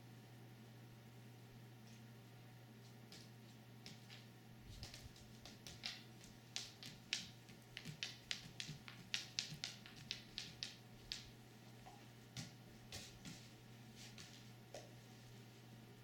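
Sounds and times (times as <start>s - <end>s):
faint steady hum: 0.0s - 16.0s
dog claws clicking on wooden floor: 3.1s - 13.5s.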